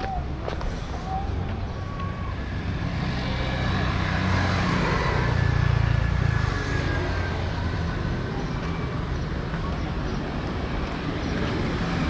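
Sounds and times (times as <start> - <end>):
street traffic: 0.0 - 12.0
small motorcycle passing: 2.1 - 9.8.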